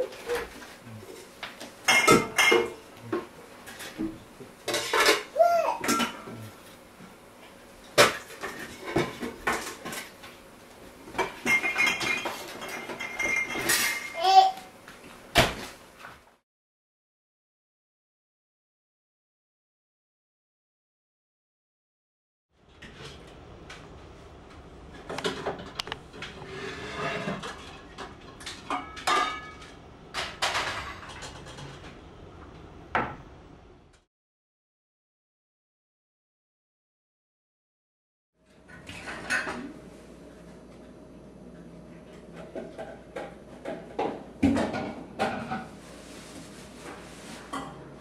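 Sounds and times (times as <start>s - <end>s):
pots and pans clattering: 0.0s - 6.4s, 7.9s - 10.3s, 11.1s - 14.2s, 25.1s - 32.0s, 38.7s - 39.7s, 42.2s - 45.8s.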